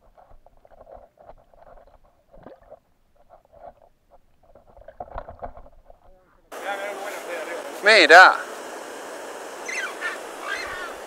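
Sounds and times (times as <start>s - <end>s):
underwater gurgling: 0.0s - 4.1s.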